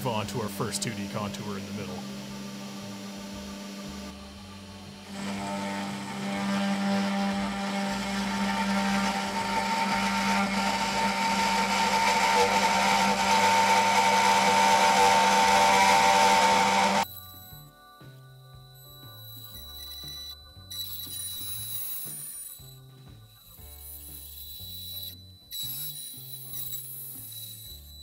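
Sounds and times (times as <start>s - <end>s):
router spindle milling aluminium: 0.8s - 17.0s, 23.5s - 27.9s.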